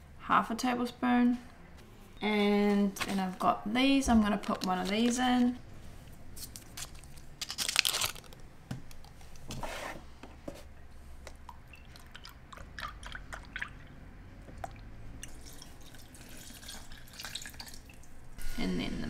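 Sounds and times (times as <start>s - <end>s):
foil wrapper crinkling: 4.1s - 5.6s, 6.4s - 8.4s
liquid trickling into a jug: 11.4s - 18.2s.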